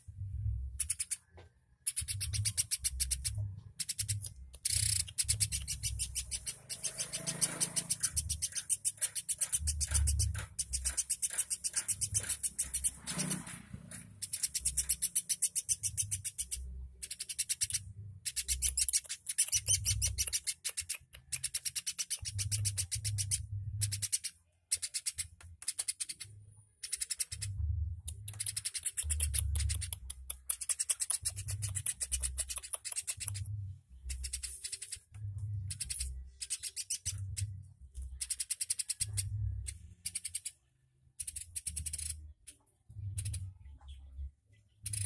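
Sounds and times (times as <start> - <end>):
woodpecker rattling trills: 0.8 - 42.5.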